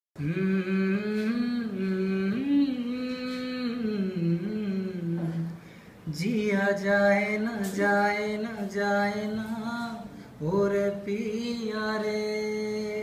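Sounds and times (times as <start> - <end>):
man humming: 0.2 - 6.3.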